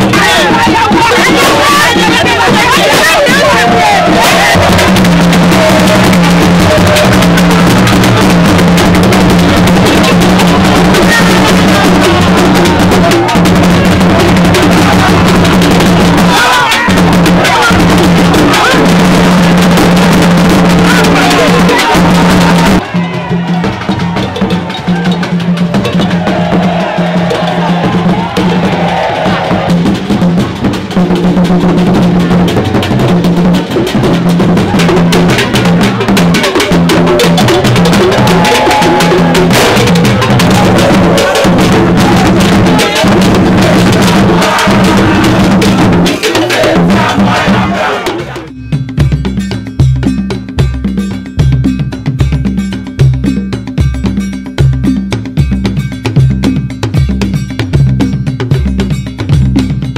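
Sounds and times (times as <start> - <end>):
voices: 0.0 - 30.2, 34.2 - 48.5
drum-led music: 0.0 - 59.9.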